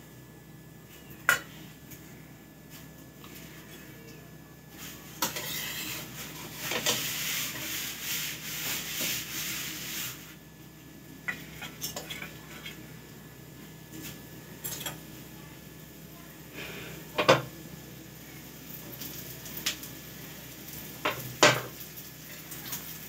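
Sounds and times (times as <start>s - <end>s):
metal spatula scraping griddle: 4.8s - 10.3s.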